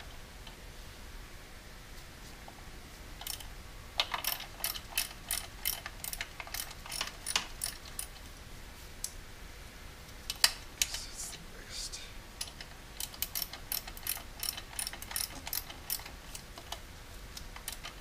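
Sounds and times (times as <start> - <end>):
ratcheting wrench clicking: 3.2 - 8.2, 12.4 - 16.8, 17.6 - 18.0.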